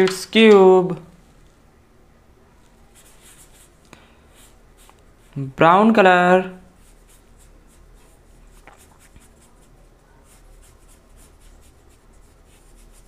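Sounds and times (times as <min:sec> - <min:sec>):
paintbrush swishing on paper: 0:02.6 - 0:05.5, 0:06.6 - 0:13.0.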